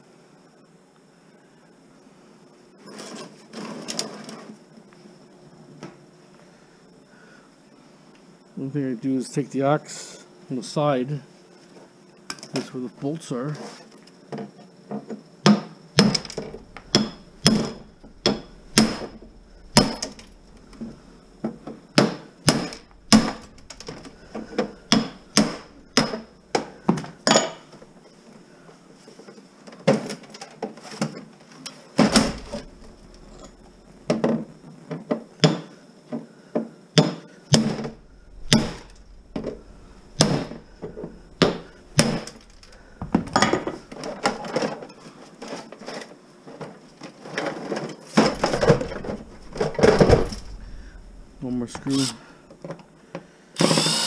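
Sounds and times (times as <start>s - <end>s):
axe striking wooden cabinet: 16.0s - 20.3s, 22.0s - 26.7s, 37.0s - 44.4s.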